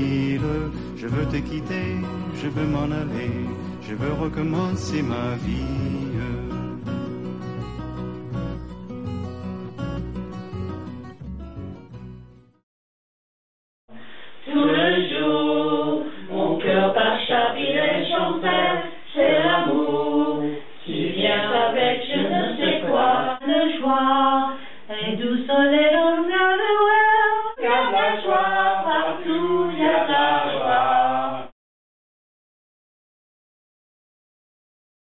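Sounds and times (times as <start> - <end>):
group singing unaccompanied: 0.0 - 6.4, 14.4 - 31.5.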